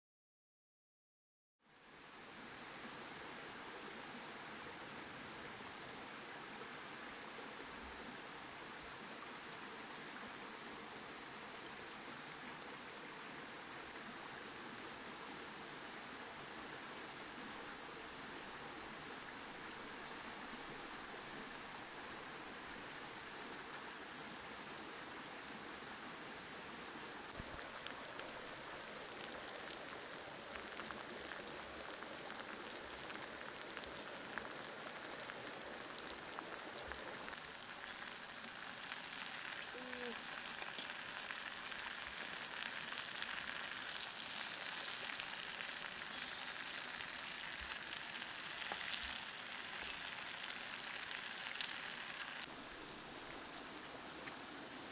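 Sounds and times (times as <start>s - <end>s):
vegetables sizzling on hot stone: 37.7s - 52.5s.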